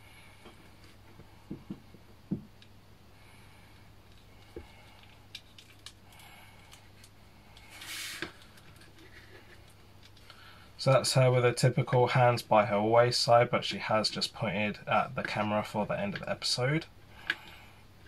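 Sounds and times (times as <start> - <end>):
soft rustle: 6.8 - 10.2.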